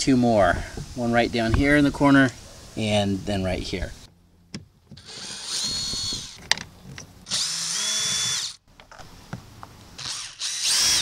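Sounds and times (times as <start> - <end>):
cordless drill motor whining: 5.0 - 6.4, 7.3 - 8.6, 10.0 - 11.0.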